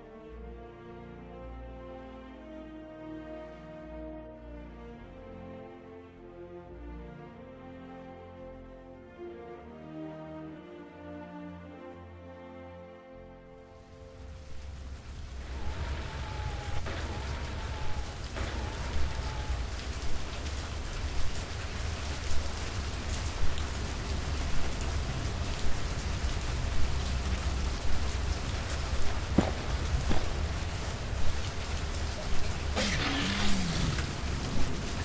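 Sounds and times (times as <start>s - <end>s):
steady rain falling: 0.0s - 12.7s, 13.4s - 35.0s
raindrops ticking: 14.1s - 35.0s.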